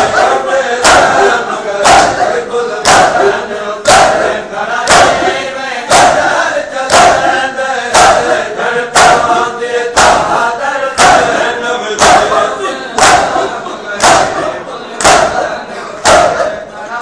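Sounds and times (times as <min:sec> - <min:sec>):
hands slapping chests: 0:00.0 - 0:03.2, 0:03.8 - 0:05.3, 0:05.9 - 0:06.3, 0:06.9 - 0:08.3, 0:09.0 - 0:09.4, 0:10.0 - 0:10.4, 0:11.0 - 0:11.4, 0:12.0 - 0:12.4, 0:13.0 - 0:14.4, 0:15.0 - 0:15.4, 0:16.0 - 0:16.4
men chanting together: 0:00.0 - 0:17.0.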